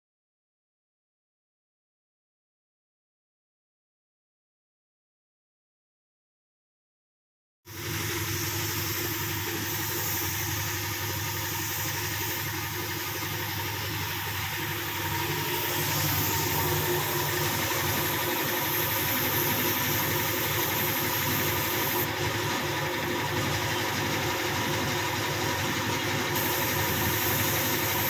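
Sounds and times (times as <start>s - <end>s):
spray gun air hiss: 7.7s - 22.1s, 26.3s - 28.0s
air compressor running: 7.7s - 28.0s.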